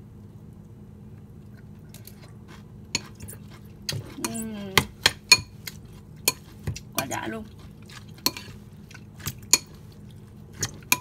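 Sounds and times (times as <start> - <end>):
steady low hum: 0.0 - 11.0
utensil clinking against bowl: 10.6 - 11.0.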